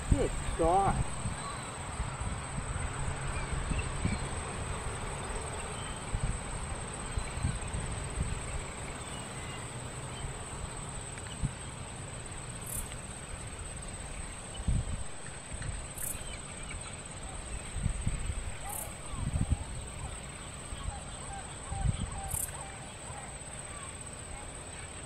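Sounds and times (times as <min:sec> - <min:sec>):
low rumble: 0:00.0 - 0:05.0.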